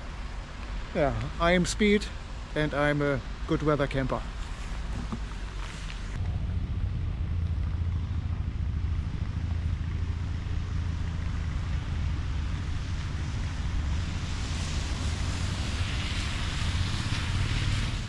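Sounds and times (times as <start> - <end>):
hiss: 13.4 - 18.0.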